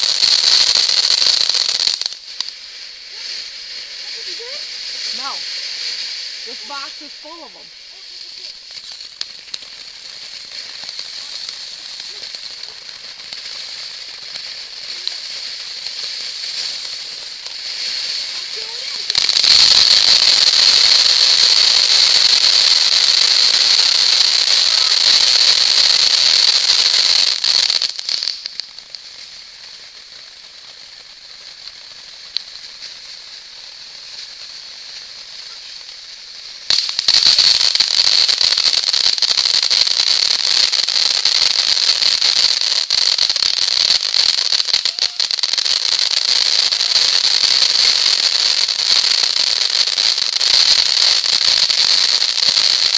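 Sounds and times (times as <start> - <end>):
ground fountain fireworks hissing: 0.0 - 52.9.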